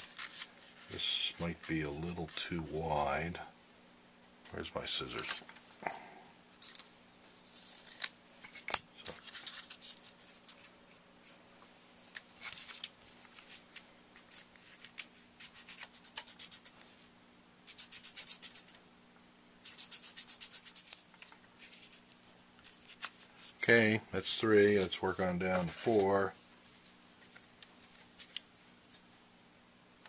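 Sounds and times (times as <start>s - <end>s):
scissors cutting sandpaper: 14.3s - 16.8s, 19.7s - 21.3s
quick back-and-forth sanding: 19.7s - 21.0s.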